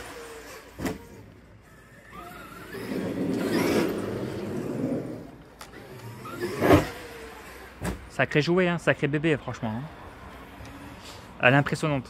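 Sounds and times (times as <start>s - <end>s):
electric motor rising whine: 0.0s - 7.8s.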